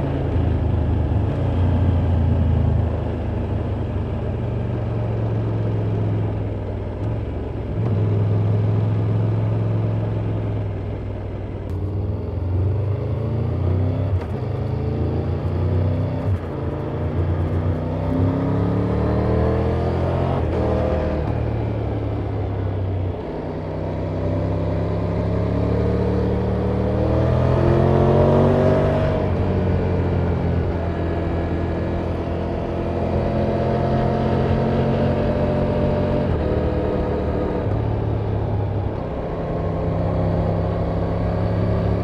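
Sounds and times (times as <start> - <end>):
motorcycle engine revving: 11.8 - 42.0.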